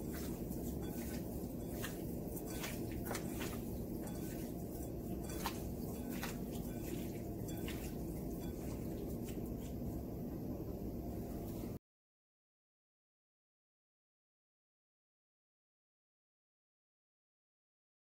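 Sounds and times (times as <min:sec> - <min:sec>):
shrimp tossed in a bowl: 0:00.0 - 0:09.7
low background hum: 0:00.0 - 0:11.8.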